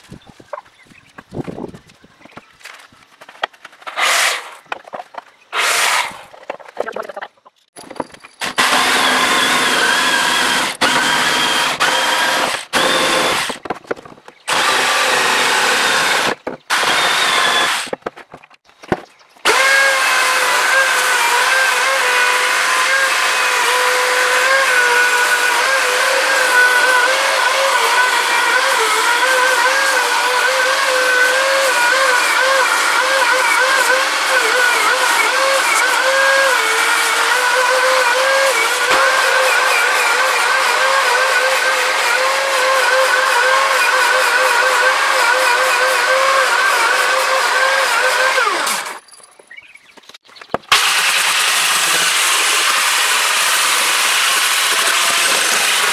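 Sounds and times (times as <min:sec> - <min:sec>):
jigsaw cutting wood: 0:03.9 - 0:04.6, 0:05.5 - 0:06.3, 0:08.4 - 0:13.7, 0:14.5 - 0:18.0, 0:19.4 - 0:49.0, 0:50.6 - 0:55.9
drill spinning sanding disc: 0:05.6 - 0:06.2, 0:08.4 - 0:13.6, 0:14.5 - 0:18.0, 0:19.5 - 0:49.0, 0:50.7 - 0:55.9.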